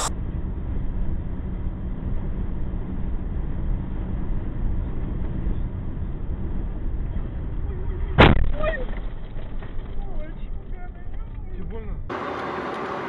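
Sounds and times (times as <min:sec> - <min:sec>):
car cabin road drone: 0:00.0 - 0:13.0.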